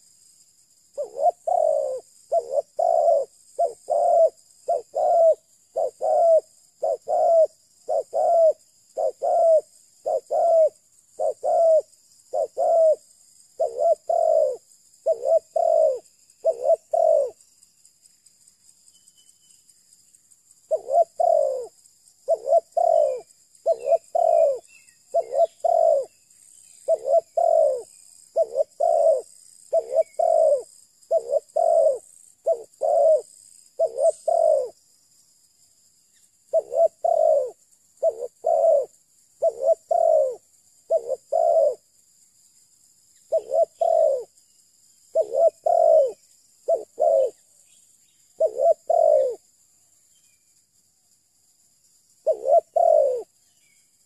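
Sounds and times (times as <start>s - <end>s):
dove cooing: 1.0s - 17.4s, 20.7s - 26.2s, 26.8s - 34.8s, 36.5s - 41.8s, 43.3s - 44.3s, 45.1s - 47.4s, 48.4s - 49.4s, 52.2s - 53.3s.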